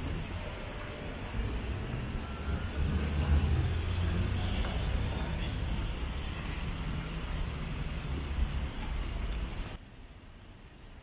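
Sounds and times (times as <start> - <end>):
traffic engine rumble: 0.0 - 10.0
tyres hissing on wet road: 2.9 - 5.9.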